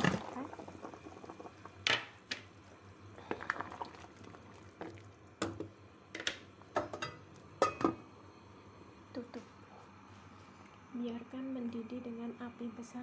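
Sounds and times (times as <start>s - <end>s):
soup bubbling: 0.0s - 6.1s.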